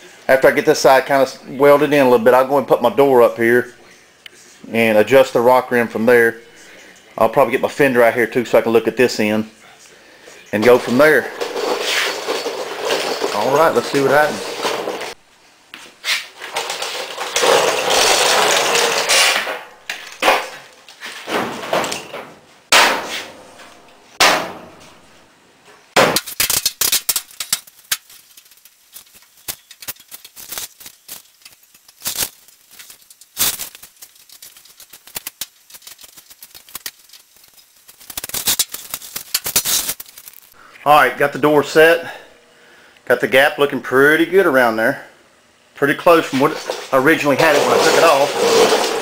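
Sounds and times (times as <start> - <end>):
metal scraping and rustling: 10.6 - 15.2, 16.0 - 25.2, 26.1 - 40.6, 46.0 - 49.0
sharp metal knocks and clanks: 21.3 - 23.4, 24.2 - 24.8.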